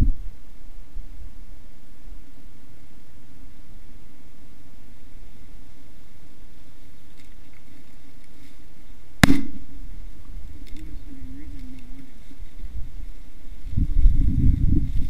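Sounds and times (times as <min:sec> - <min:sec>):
steady background hiss: 0:00.0 - 0:15.0
shotgun shot: 0:09.2 - 0:09.8.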